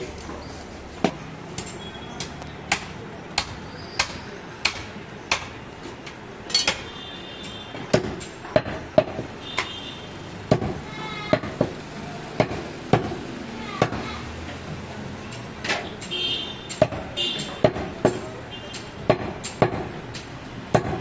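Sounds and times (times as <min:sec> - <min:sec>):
cleaver chopping on wooden block: 0:01.0 - 0:05.6, 0:07.9 - 0:09.7, 0:10.5 - 0:11.8, 0:12.4 - 0:13.2, 0:16.7 - 0:21.0.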